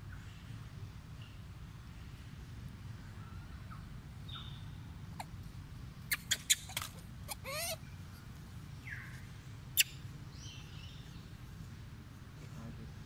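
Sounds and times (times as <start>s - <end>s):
animal squeal: 6.1s - 7.8s.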